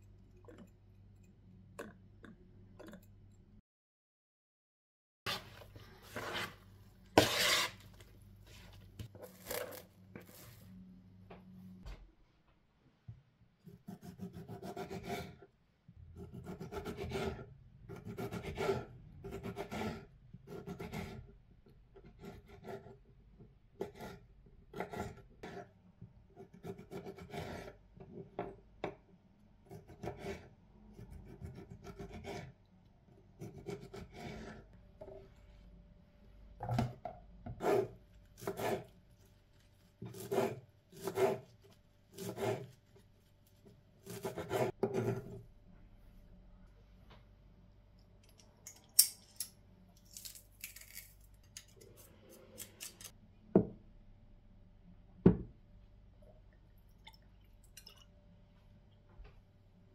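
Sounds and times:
knife cutting tomatoes on board: 7.2s - 7.8s, 37.5s - 38.9s, 40.0s - 41.5s, 42.1s - 42.8s, 44.0s - 45.4s.

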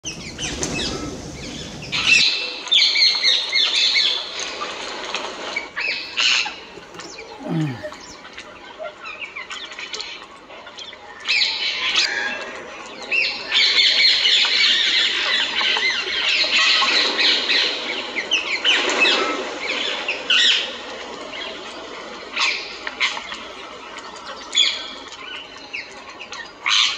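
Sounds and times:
birds chirping: 0.0s - 3.1s, 5.4s - 11.9s.

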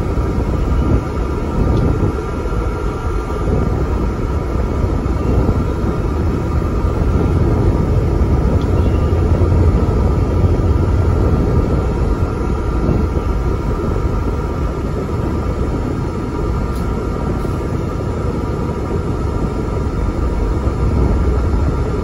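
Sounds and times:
bus engine drone: 0.0s - 22.0s
faint high whine: 8.0s - 12.7s.

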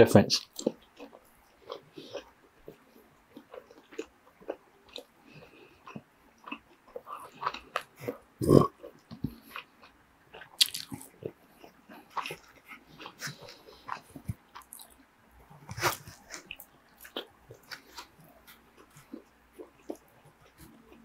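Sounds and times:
crunching while chewing: 0.4s - 21.0s
wet mouth clicks: 10.6s - 11.1s.

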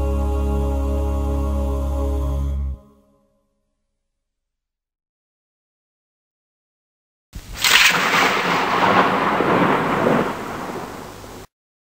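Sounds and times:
thunder-like crash: 7.6s - 11.5s.

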